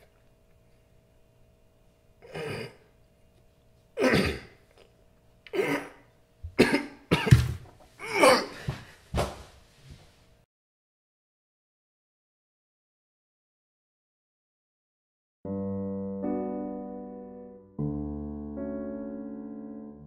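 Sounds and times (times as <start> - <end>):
man coughing and choking: 2.2 - 2.9, 4.0 - 4.6, 5.5 - 8.6.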